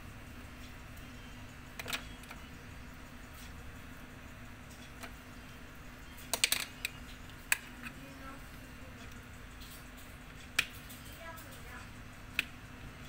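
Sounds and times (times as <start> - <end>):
art tools clicking on tabletop: 6.2 - 8.0.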